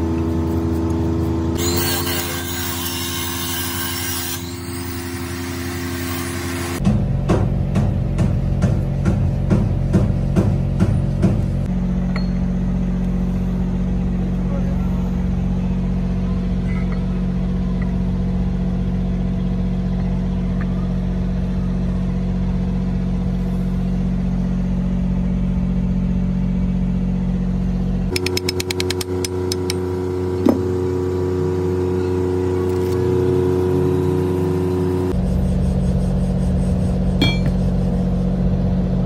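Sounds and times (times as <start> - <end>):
machine drone: 21.7 - 39.0
sharp clink: 37.2 - 37.6.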